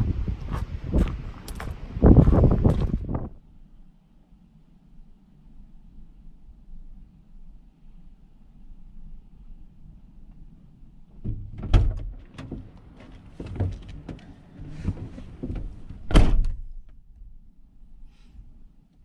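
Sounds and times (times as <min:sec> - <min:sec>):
vehicle door thunks: 0:14.8 - 0:16.7.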